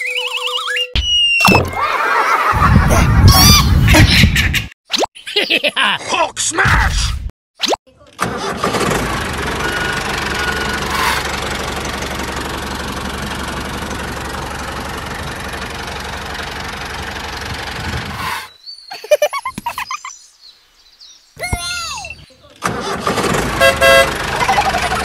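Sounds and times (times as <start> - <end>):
tractor engine running: 8.2 - 18.2, 22.5 - 25.0.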